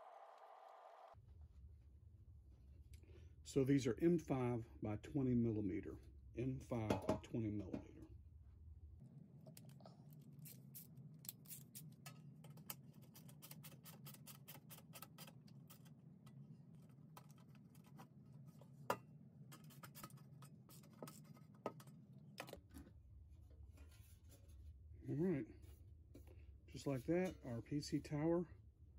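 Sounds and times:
faint low hum: 0:00.0 - 0:14.6.

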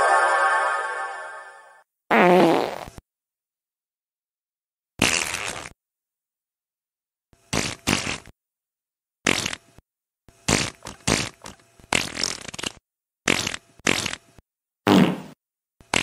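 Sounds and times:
comic fart sound effects: 0:02.1 - 0:03.0, 0:05.0 - 0:05.8, 0:07.5 - 0:08.4, 0:09.2 - 0:09.8, 0:10.4 - 0:16.0.

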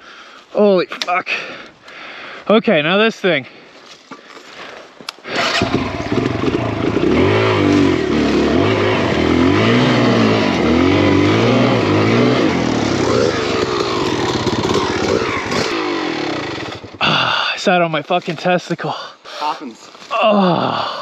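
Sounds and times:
motorcycle engine revving: 0:05.3 - 0:17.4.

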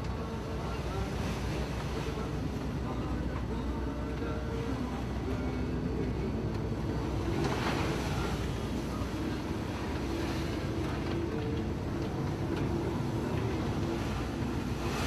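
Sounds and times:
diesel truck engine rumbling: 0:00.0 - 0:15.0.

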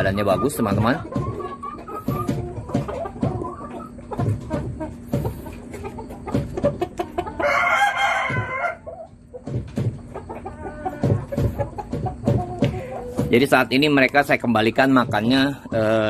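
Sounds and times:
rooster crowing: 0:07.4 - 0:08.9.

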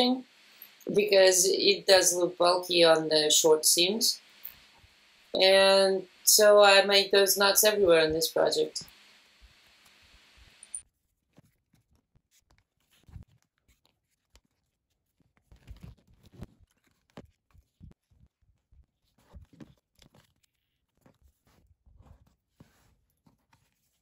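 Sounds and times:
leather stitching rustles and clicks: 0:10.8 - 0:24.0.

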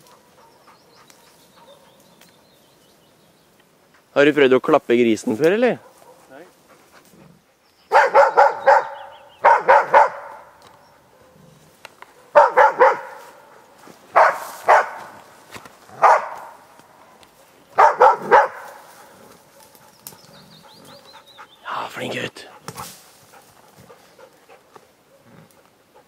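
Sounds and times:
dog barking: 0:00.0 - 0:02.0, 0:05.8 - 0:06.4, 0:07.9 - 0:11.5, 0:12.1 - 0:15.2, 0:16.0 - 0:16.6, 0:17.8 - 0:19.9.

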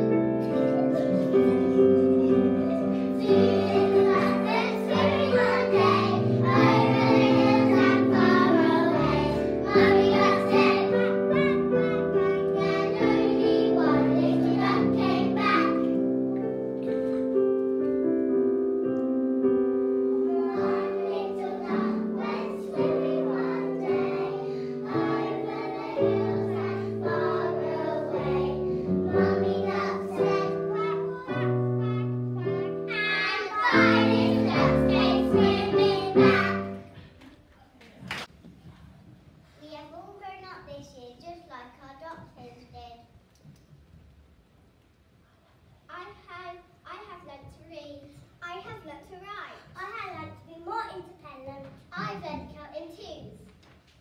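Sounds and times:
young children singing: 0:00.0 - 0:17.2, 0:20.1 - 0:37.1
piano backing: 0:00.0 - 0:37.2.

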